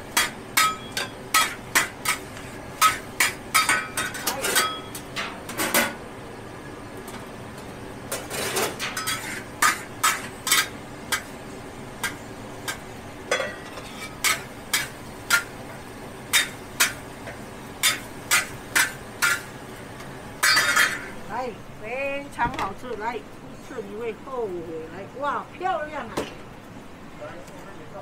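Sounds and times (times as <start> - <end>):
metal spatula scraping steel wok: 8.3 - 10.7.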